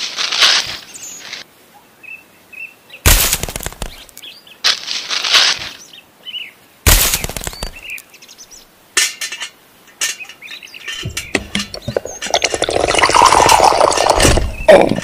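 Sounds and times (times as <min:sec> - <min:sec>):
birds chirping: 0:05.7 - 0:15.0
gravel pouring into mixer drum: 0:12.3 - 0:14.2.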